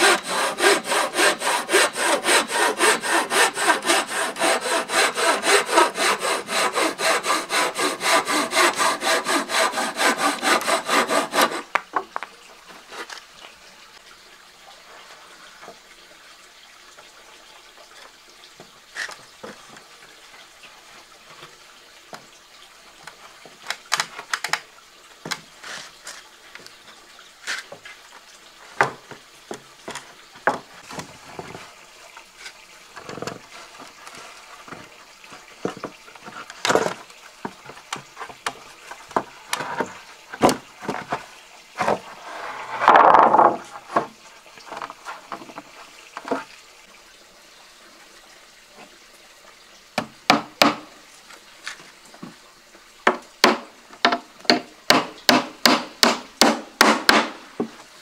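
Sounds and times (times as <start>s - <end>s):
scraping on wood: 0.0s - 11.8s, 39.2s - 44.1s.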